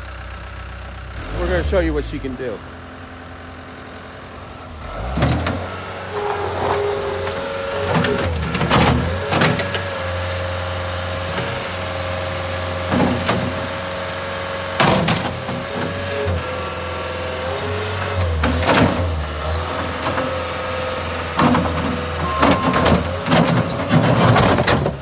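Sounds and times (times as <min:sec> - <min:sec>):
diesel engine revving: 0:00.0 - 0:25.0
hydraulic whine: 0:04.8 - 0:13.9, 0:17.4 - 0:24.7
machine clunks: 0:21.4 - 0:24.9.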